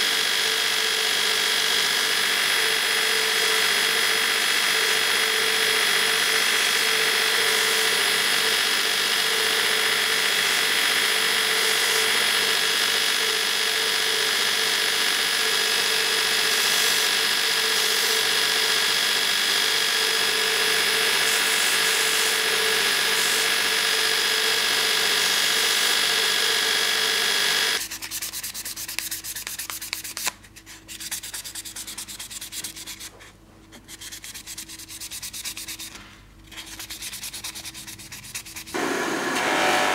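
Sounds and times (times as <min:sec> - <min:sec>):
belt sander whining: 0:00.0 - 0:27.8, 0:38.7 - 0:39.9
hand-sanding strokes on wood: 0:36.6 - 0:38.8.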